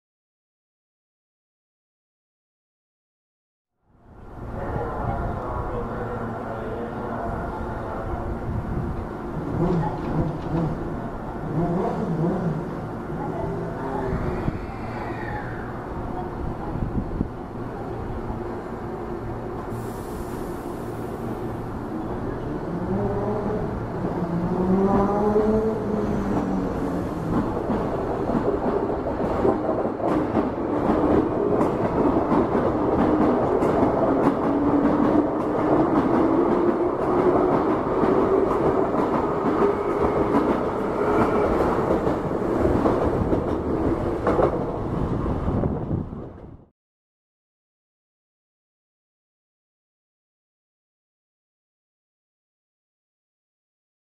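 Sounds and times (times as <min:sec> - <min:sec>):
electric train running past: 0:04.0 - 0:46.6.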